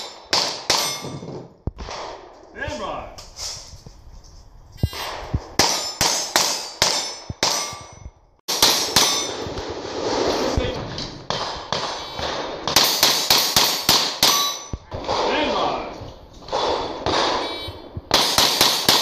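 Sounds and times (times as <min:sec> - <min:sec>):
steel target clanging: 0:00.0 - 0:01.4, 0:04.8 - 0:09.6, 0:11.3 - 0:14.9.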